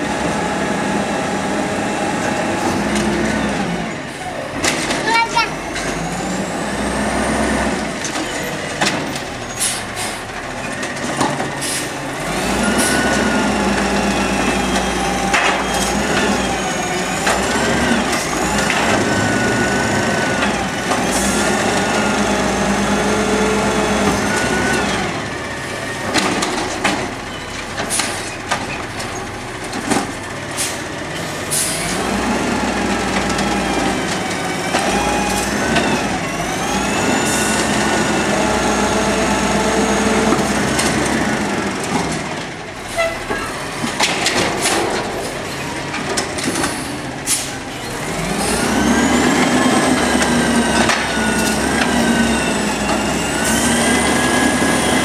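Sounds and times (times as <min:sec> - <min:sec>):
garbage truck engine revving: 0:00.0 - 0:55.0
plastic carts banging: 0:43.2 - 0:46.9.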